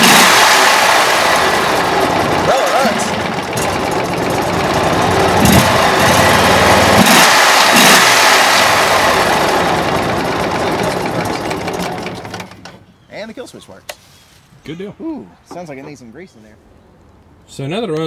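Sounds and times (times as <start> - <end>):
mud motor engine running: 0.0 - 12.9.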